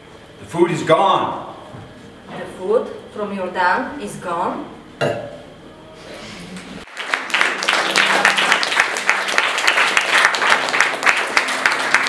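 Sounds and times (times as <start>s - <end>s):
audience applauding: 6.8s - 12.0s.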